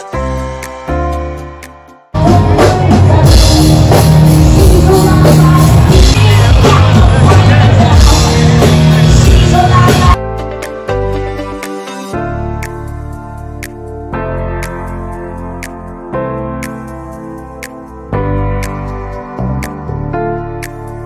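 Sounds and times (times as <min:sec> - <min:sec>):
soft keyboard music: 0:00.0 - 0:21.0
person singing: 0:02.2 - 0:10.3
live rock band: 0:02.2 - 0:15.6.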